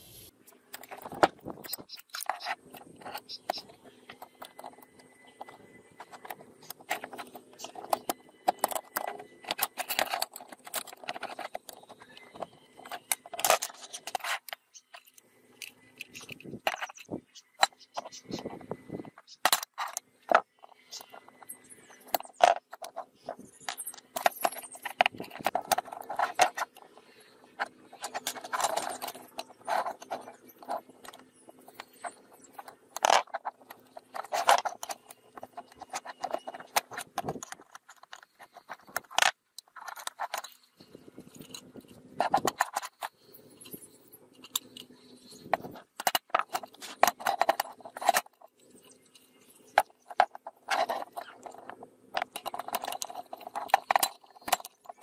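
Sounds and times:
metal lantern parts rattling: 5.4 - 18.3, 27.9 - 55.0.

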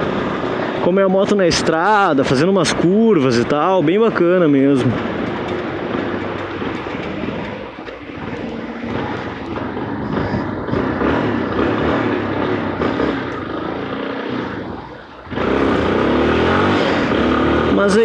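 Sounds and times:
motorcycle engine running: 4.9 - 18.0.

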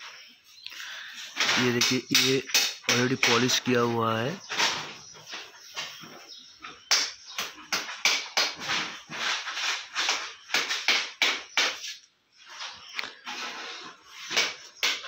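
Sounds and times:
rapid irregular knocks and taps: 1.4 - 3.8, 5.2 - 12.0, 14.3 - 15.0.

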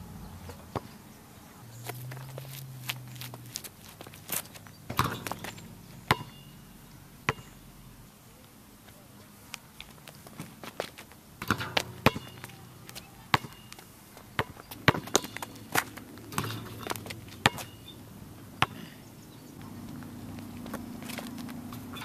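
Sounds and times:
basketball bouncing on pavement: 0.0 - 1.0, 1.8 - 7.9, 9.8 - 19.0, 19.6 - 22.0
ball dunk on metal rim: 4.9 - 6.6, 11.4 - 12.5, 16.3 - 17.8.

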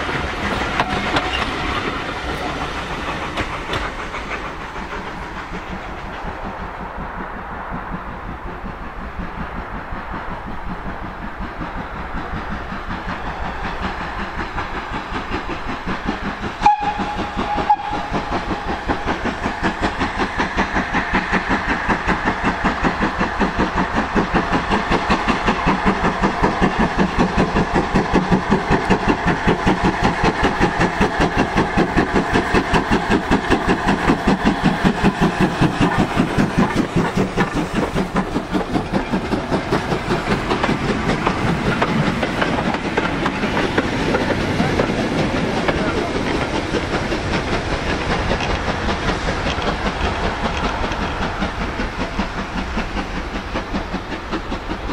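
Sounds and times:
steam engine exhaust beating: 0.0 - 54.9
steam whistle toot: 16.6 - 18.3.

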